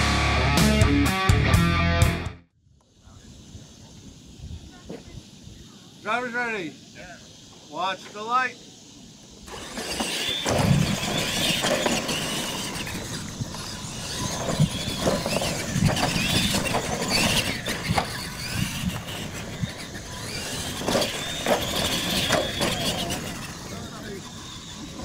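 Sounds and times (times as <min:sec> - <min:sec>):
toy truck motors whining: 0:03.0 - 0:25.0
trucks thumping on landing: 0:09.5 - 0:23.7.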